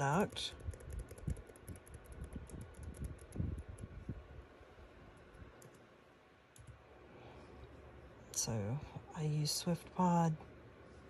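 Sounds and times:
laptop keyboard taps: 0.3 - 3.9.

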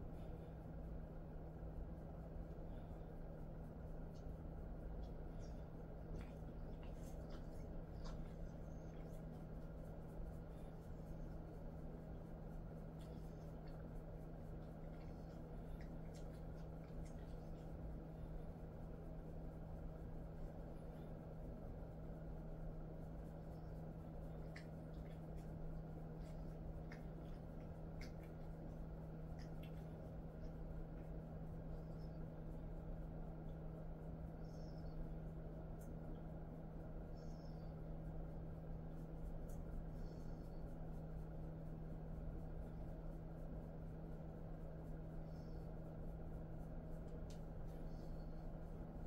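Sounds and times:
steady low hum: 0.0 - 49.0
hands rubbing dog fur: 3.4 - 32.2
soft clicks: 47.0 - 49.0
faint tick: 47.1 - 47.5.

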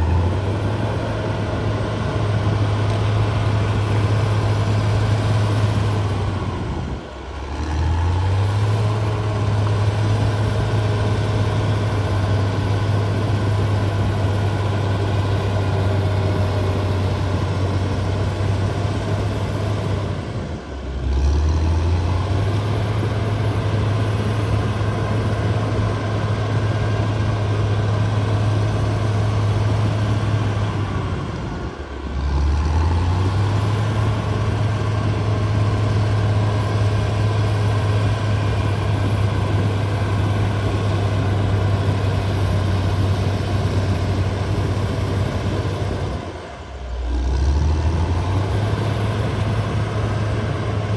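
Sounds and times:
bulldozer diesel engine: 0.0 - 50.9.

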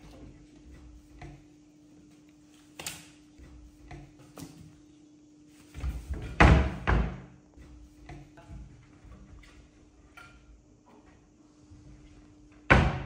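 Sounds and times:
steady low hum: 0.0 - 13.0
cabinet door rattling and banging: 5.8 - 7.3, 12.6 - 13.0.

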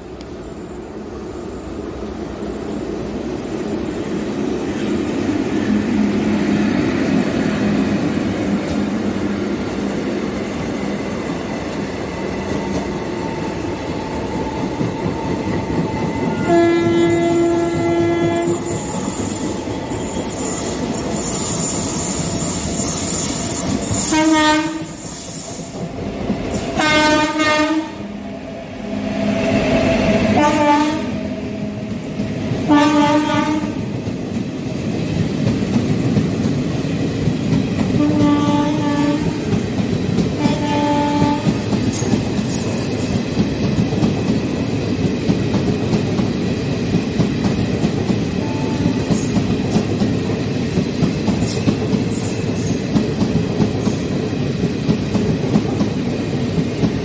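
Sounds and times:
train rumble and wheel clatter: 0.0 - 57.0
locomotive horn blasts: 16.3 - 18.7, 24.1 - 25.0, 26.8 - 28.0, 30.4 - 31.1, 32.7 - 33.8, 38.0 - 39.4, 40.4 - 41.5.

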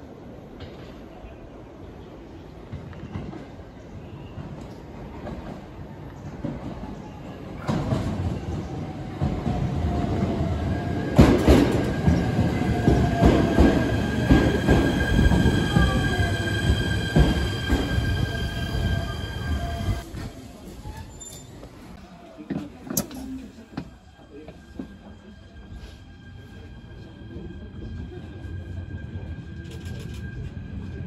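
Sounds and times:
high brake squeal: 15.5 - 21.8.

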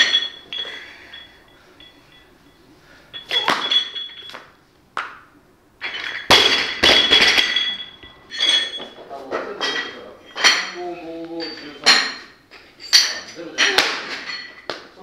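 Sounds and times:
plates and collars rattling: 0.0 - 2.2, 3.2 - 4.4, 5.8 - 10.8, 11.4 - 14.8
barbell plates clinking: 0.0 - 2.4, 3.1 - 4.6, 5.8 - 14.8.

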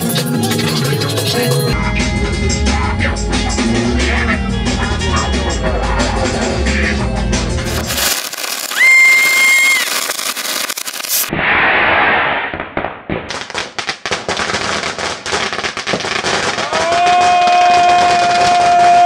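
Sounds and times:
hissing spark fountain: 7.6 - 11.3
firework crackling and bangs: 7.6 - 19.0
firework whistle: 7.7 - 12.5.

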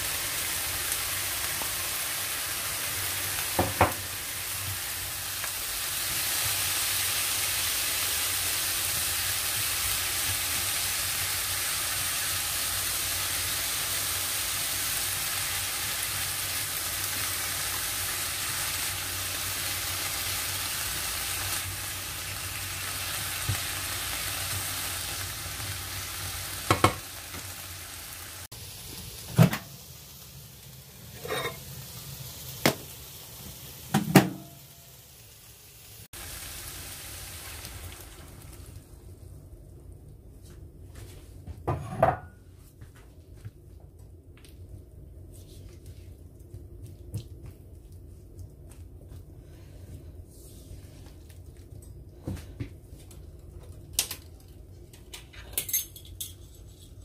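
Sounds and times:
vegetables sizzling in a frying pan: 0.0 - 39.4
spatula knocking on pan: 3.6 - 4.0, 26.7 - 27.0.

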